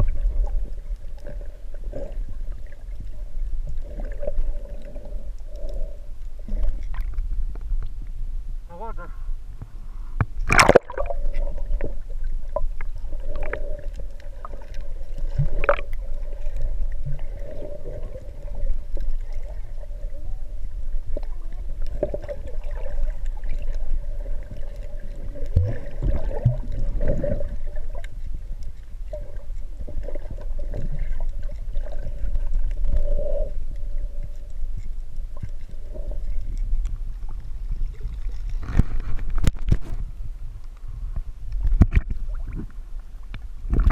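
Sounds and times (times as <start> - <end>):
low underwater rumble: 0.0 - 43.9
sharp splash of camera dunked: 10.5 - 11.2
water moving around camera case: 38.2 - 40.2.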